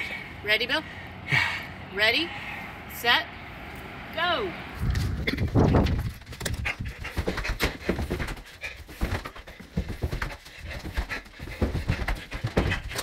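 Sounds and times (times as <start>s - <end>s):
footsteps down stairs: 5.3s - 13.0s
heavy panting breaths: 6.5s - 13.0s.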